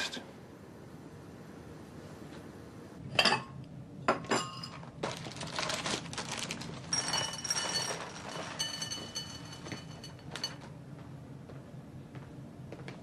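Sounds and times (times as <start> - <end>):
dishes and cutlery clattering: 6.9 - 10.6.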